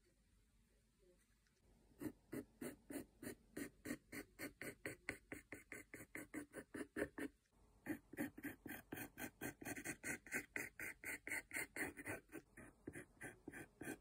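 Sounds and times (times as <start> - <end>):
pencil scratching on wood: 2.0 - 14.0.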